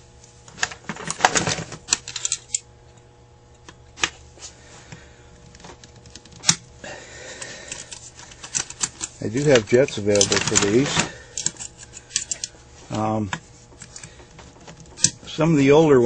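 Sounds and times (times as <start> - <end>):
small metal parts clicking: 1.9 - 2.6, 7.6 - 12.5.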